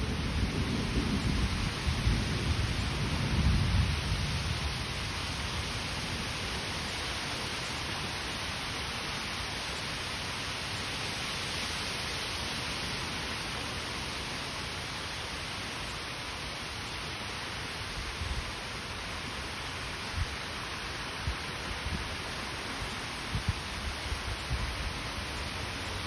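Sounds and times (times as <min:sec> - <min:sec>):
thunder rumbling: 0:00.0 - 0:05.1
heavy rain pouring: 0:00.0 - 0:26.0.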